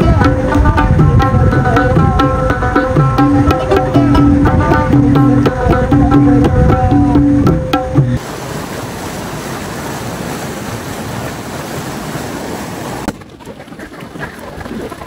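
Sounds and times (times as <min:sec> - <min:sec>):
river water rushing: 0:07.6 - 0:13.1.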